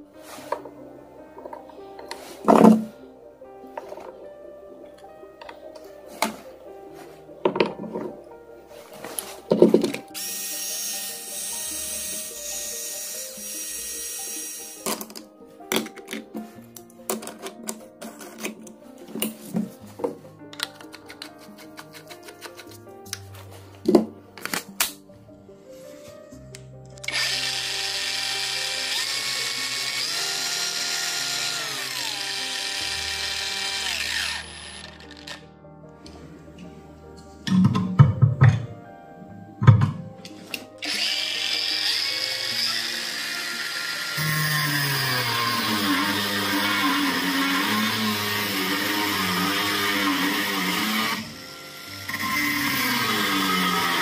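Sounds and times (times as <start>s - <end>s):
angle grinder motor whine: 10.2s - 14.8s, 27.0s - 35.4s, 40.8s - 54.0s.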